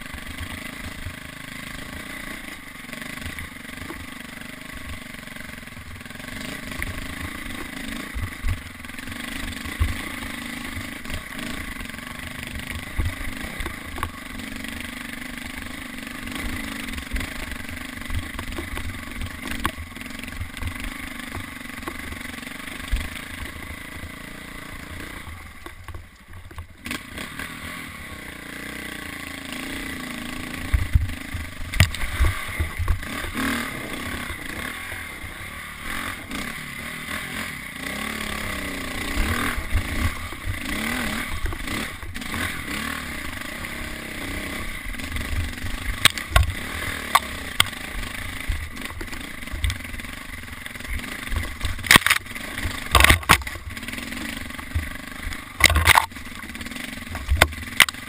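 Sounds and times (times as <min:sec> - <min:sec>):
dirt bike engine revving: 0:00.0 - 0:58.0
bike knocking against rocks: 0:16.4 - 0:23.6, 0:30.7 - 0:33.5, 0:45.2 - 0:47.8, 0:50.8 - 0:53.8, 0:54.6 - 0:58.0.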